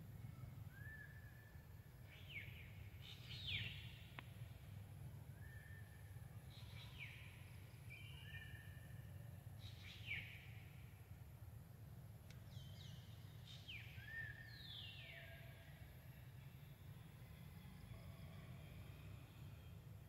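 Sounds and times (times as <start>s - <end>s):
low background noise: 0.0s - 20.0s
faint whistled bird calls: 0.2s - 4.2s, 5.3s - 10.8s, 12.4s - 16.3s.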